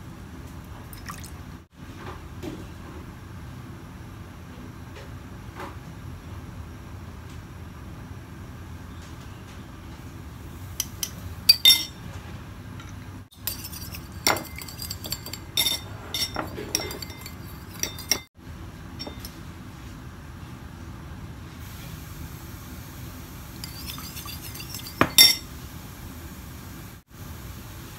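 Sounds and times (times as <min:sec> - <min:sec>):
spoon stirring in ceramic bowl: 0:13.4 - 0:18.3, 0:23.6 - 0:25.4.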